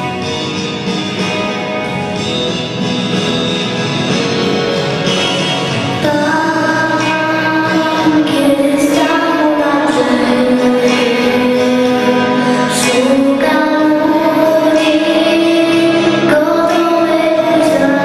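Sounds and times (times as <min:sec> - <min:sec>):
instrumental accompaniment: 0:00.0 - 0:18.0
girl singing: 0:06.0 - 0:18.0.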